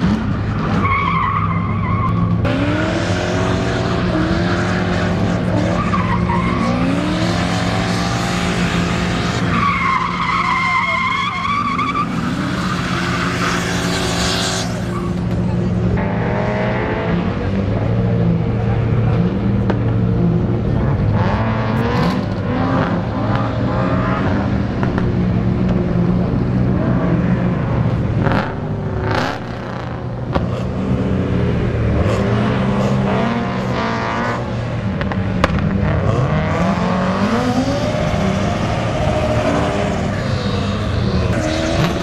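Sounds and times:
car engines revving hard: 0.0s - 42.0s.

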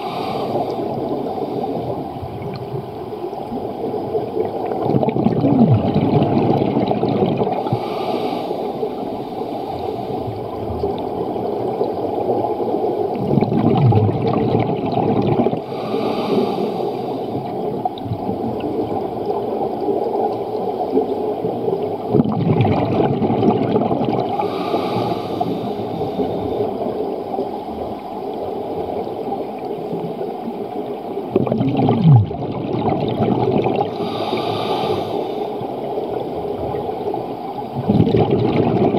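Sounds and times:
regulator hissing inhale: 0.0s - 2.0s, 7.6s - 10.6s, 15.6s - 17.5s, 24.4s - 26.7s, 33.9s - 35.8s
exhaled bubbles rushing: 0.0s - 7.8s, 10.2s - 15.7s, 21.5s - 27.4s, 31.2s - 38.9s
underwater rumble: 0.0s - 38.9s.

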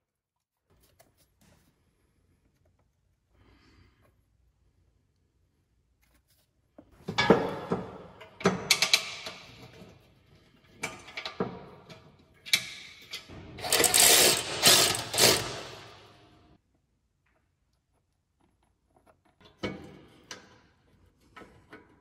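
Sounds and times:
cordless ratchet running: 13.6s - 16.1s.

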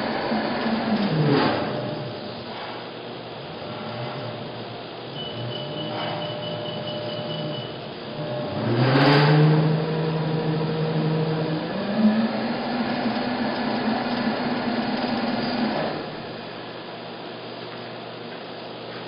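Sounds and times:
motor hum rising in pitch: 3.4s - 16.4s.

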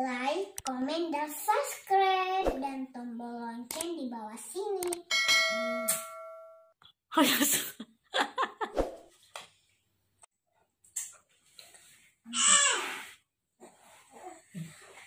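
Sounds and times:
bell-like notification chime: 5.1s - 6.7s.

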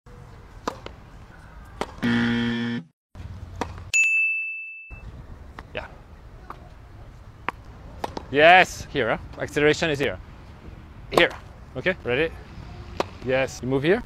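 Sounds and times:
tennis balls struck: 0.6s - 1.0s, 1.8s - 2.0s, 3.5s - 3.9s, 7.4s - 8.3s, 11.1s - 11.5s, 12.9s - 13.3s
low buzz: 2.0s - 2.9s
bright ding: 3.9s - 5.0s.

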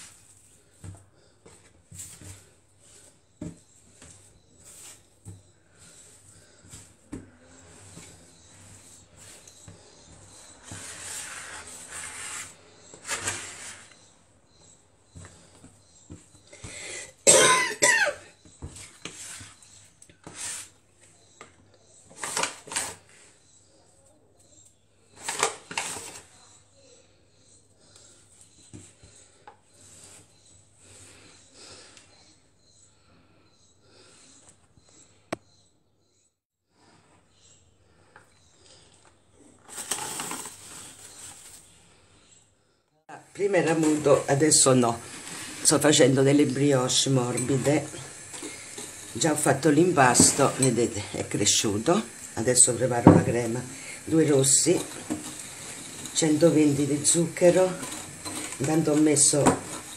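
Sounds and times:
hands kneading dough: 0.0s - 14.0s.

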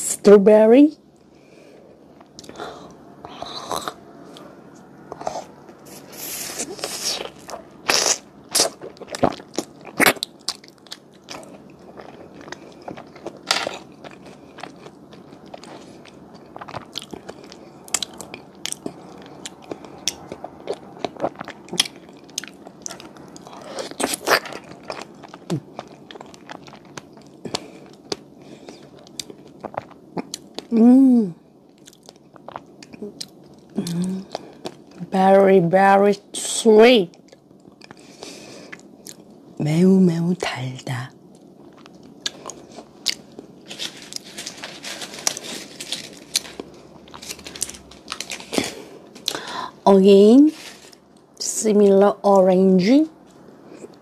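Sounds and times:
chewing with wet mouth clicks: 8.5s - 30.7s, 31.7s - 34.9s.

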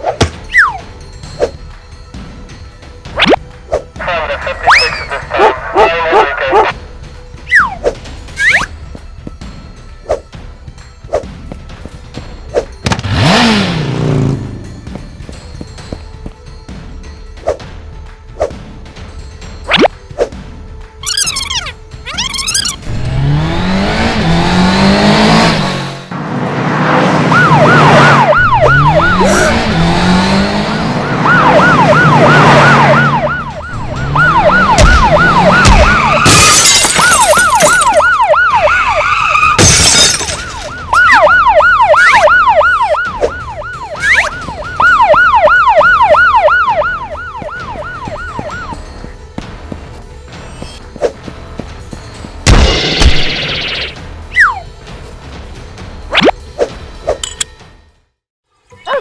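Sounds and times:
police siren yelping: 4.0s - 6.8s, 21.0s - 22.8s, 27.2s - 48.9s, 53.3s - 54.7s
car engine revving: 12.9s - 14.9s, 22.8s - 36.4s.

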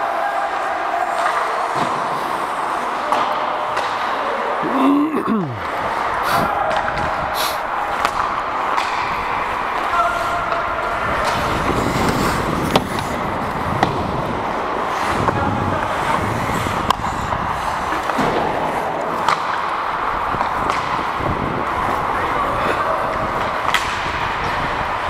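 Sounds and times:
hockey sticks and puck clacking: 0.0s - 4.7s, 5.6s - 25.0s
skates scraping on ice: 5.6s - 25.0s.

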